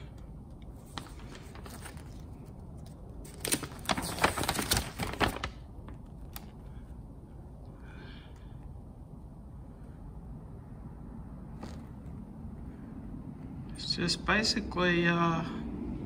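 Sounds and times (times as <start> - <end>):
paper sheets rustling: 0.8 - 6.5.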